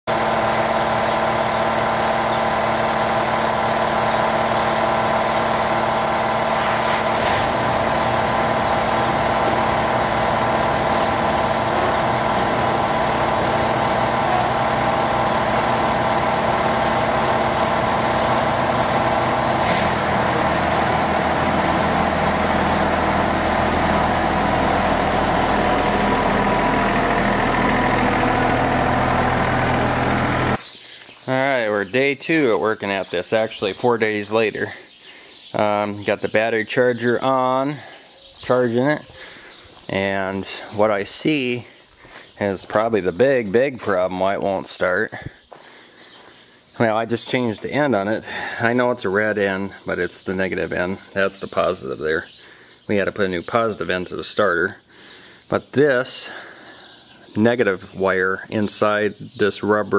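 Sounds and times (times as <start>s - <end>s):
lawn mower engine running: 0.0s - 30.6s, 45.6s - 48.7s.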